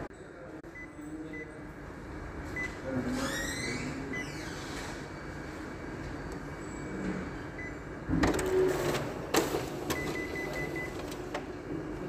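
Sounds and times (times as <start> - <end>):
photocopier humming: 0.0 - 12.0
document feeder whirring: 7.4 - 12.0.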